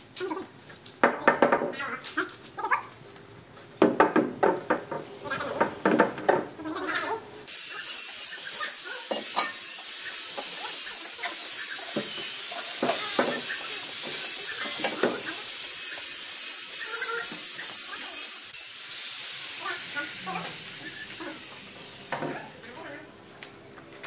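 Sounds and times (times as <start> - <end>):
steady high hiss: 7.4 - 22.8.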